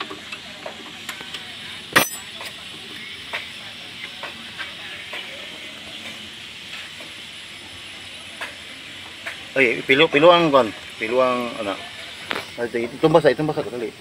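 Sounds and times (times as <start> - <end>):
metal tools clicking and knocking: 1.9 - 2.5
sharp metallic clank: 1.9 - 2.5.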